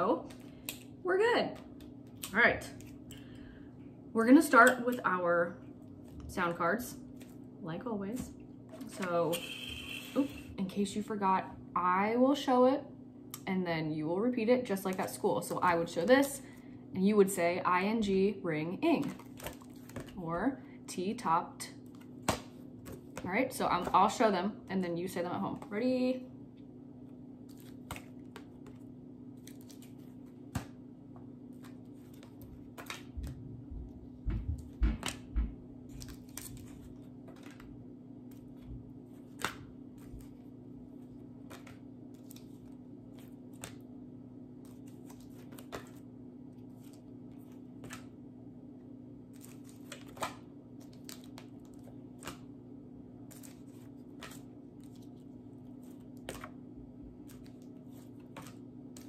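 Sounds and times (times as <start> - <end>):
steady low hum: 0.0 - 59.0
paper cards clicking and rustling: 27.4 - 30.8, 31.5 - 33.4, 35.9 - 43.9, 44.6 - 46.0, 46.7 - 48.1, 49.3 - 52.5, 53.2 - 59.0.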